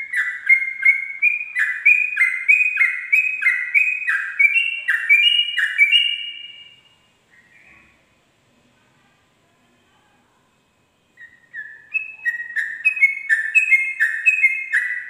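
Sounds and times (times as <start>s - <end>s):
bird singing rapid repeated notes: 0.0s - 7.7s, 11.1s - 15.0s.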